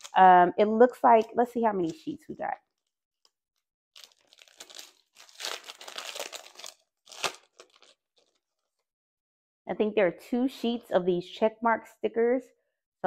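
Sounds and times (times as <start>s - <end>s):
plastic sleeve crinkling: 0.0s - 0.2s, 4.0s - 8.8s.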